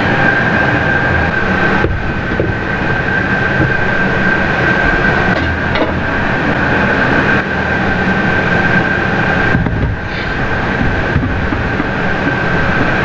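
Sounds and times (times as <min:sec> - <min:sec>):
loud machine drone with whine: 0:00.0 - 0:13.0.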